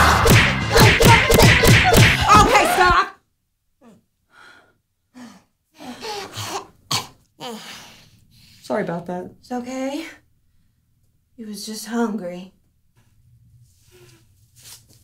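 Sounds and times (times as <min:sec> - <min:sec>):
sharp hits: 0:00.0 - 0:03.0.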